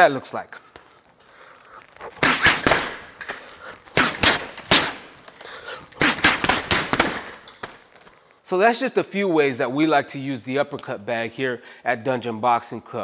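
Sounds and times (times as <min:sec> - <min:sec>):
boxing gloves hitting bag: 0:02.1 - 0:08.0.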